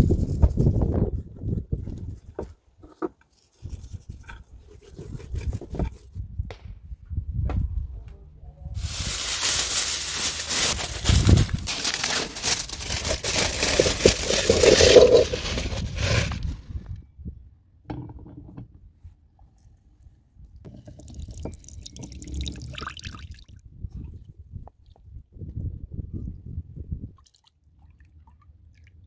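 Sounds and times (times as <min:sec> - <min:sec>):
aluminium foil crinkling: 0:08.8 - 0:16.6
broth being scooped: 0:08.9 - 0:16.5
juice trickling: 0:09.1 - 0:16.1, 0:20.7 - 0:23.5.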